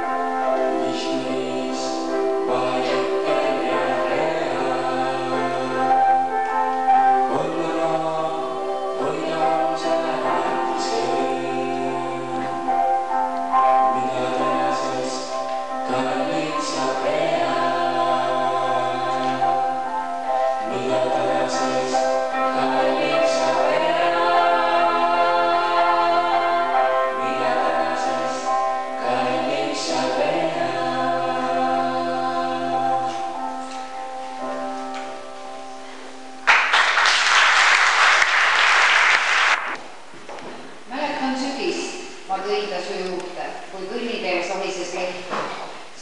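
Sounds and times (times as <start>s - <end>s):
person singing with accompaniment: 0.0s - 36.1s
audience applause: 36.5s - 39.8s.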